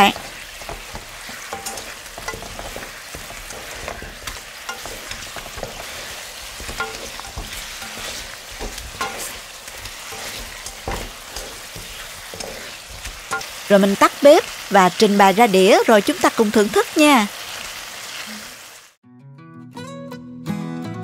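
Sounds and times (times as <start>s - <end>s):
utensils tapping and scraping pan: 0.0s - 14.5s
glaze sizzling in wok: 0.0s - 19.0s.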